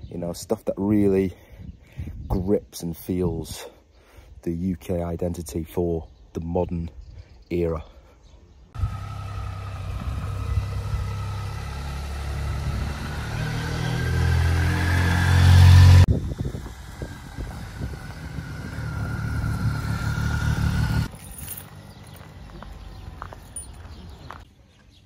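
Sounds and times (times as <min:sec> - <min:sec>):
motorcycle engine running: 0:08.8 - 0:24.4.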